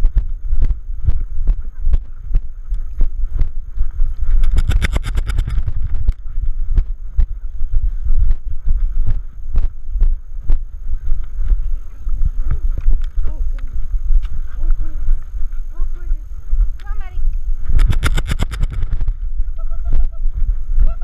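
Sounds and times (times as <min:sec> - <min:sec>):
wind rumble: 0:00.0 - 0:21.0
rattle of sharp clicks: 0:04.4 - 0:06.2, 0:17.8 - 0:19.2.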